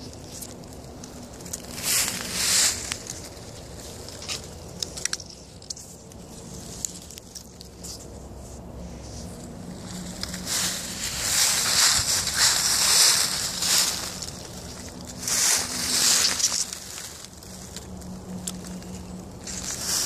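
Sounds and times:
branches swishing: 0:00.0 - 0:04.5, 0:06.5 - 0:18.0
twigs rustling and crackling: 0:00.0 - 0:20.0
small sticks snapping: 0:00.2 - 0:08.0, 0:15.9 - 0:19.6.

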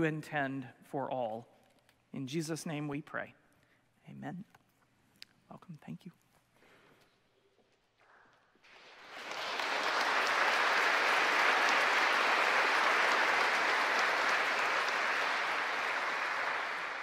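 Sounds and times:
crowd applauding: 0:08.6 - 0:17.0.

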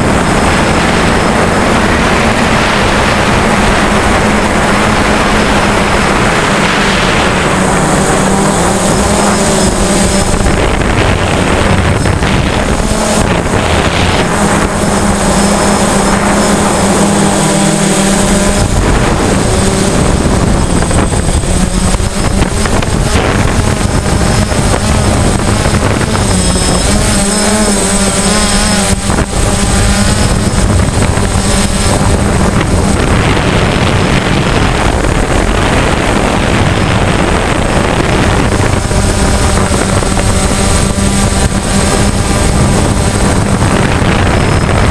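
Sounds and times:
drone motors buzzing: 0:00.0 - 0:44.9
rushing air: 0:00.0 - 0:44.9.

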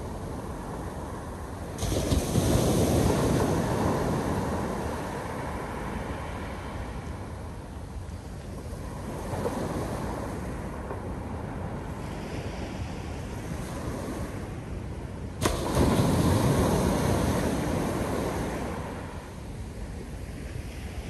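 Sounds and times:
surf washing: 0:00.0 - 0:21.0
wave breaking: 0:15.4 - 0:19.4.

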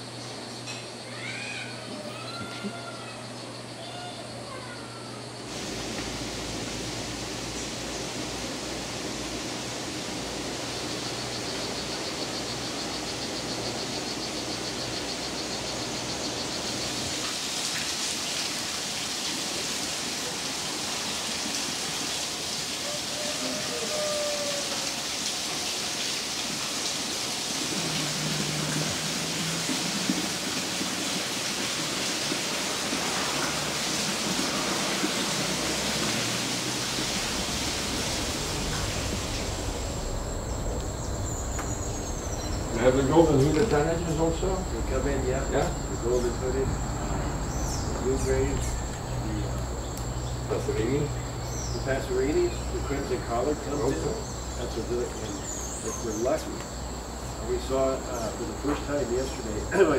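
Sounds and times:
steady rushing hiss: 0:00.0 - 0:04.6, 0:05.2 - 0:59.9
faint high pulsing trill: 0:36.9 - 0:50.3.

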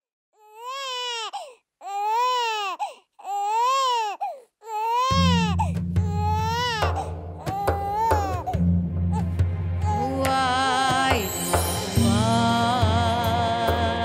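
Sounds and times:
infant crying: 0:00.4 - 0:10.2
low music drone: 0:08.5 - 0:13.6.

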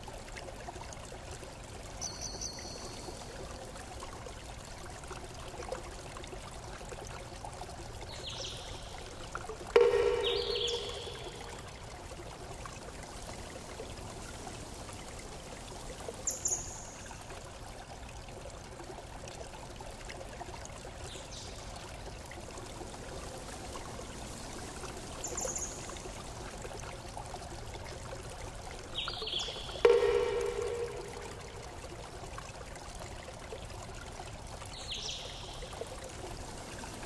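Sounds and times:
running water: 0:00.0 - 0:37.0
high-pitched blips: 0:09.8 - 0:11.5, 0:29.8 - 0:31.8.

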